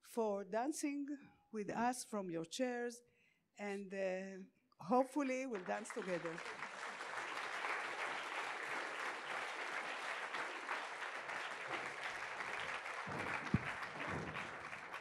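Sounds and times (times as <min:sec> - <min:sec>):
audience applauding: 0:05.6 - 0:15.0
low thump: 0:13.1 - 0:14.7.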